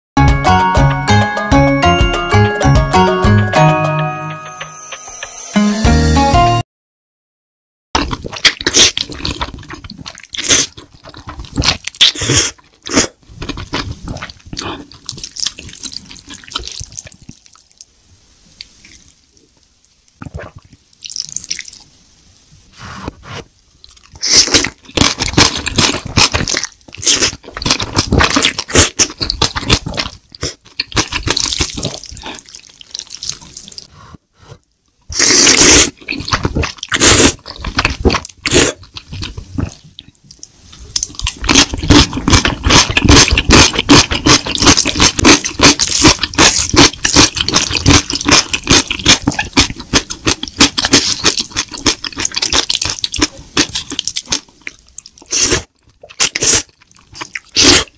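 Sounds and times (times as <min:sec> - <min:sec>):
noodles slurped and chewed: 0:08.0 - 0:17.8, 0:23.8 - 0:57.9.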